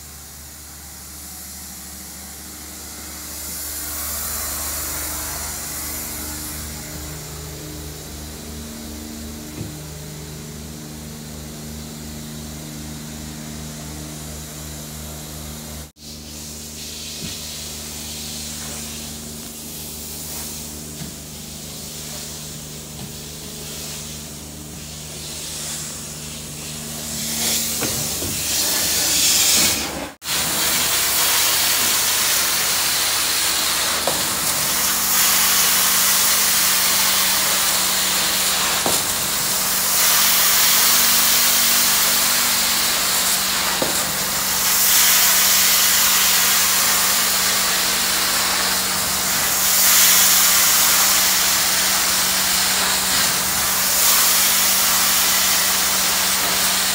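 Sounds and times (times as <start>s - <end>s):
cleaning wand hissing: 0.0s - 8.4s, 21.4s - 56.9s
throbbing machine drone: 0.0s - 15.9s.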